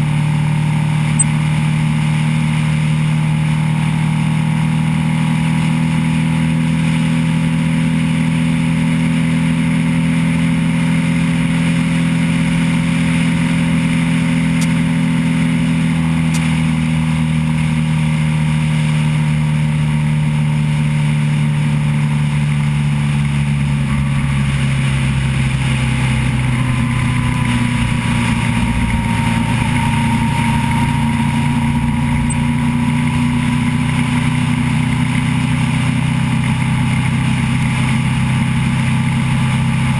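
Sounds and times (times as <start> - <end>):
motorcycle engine running: 0.0 - 39.9
wind rush: 24.0 - 33.8.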